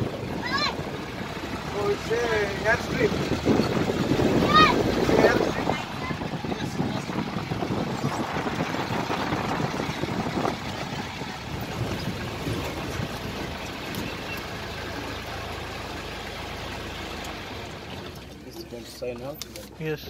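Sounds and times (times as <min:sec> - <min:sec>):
vehicle engine and road noise: 0:00.0 - 0:20.0
wind on microphone: 0:02.6 - 0:14.4.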